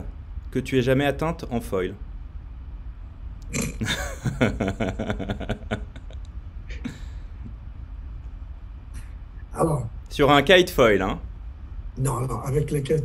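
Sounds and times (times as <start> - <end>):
man laughing heartily: 3.6 - 7.2.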